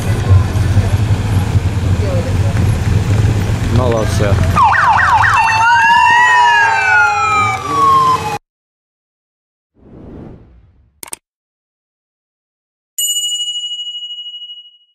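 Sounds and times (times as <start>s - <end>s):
motorcycle engines: 0.0s - 8.4s
motorcycle sirens yelping: 0.1s - 8.4s.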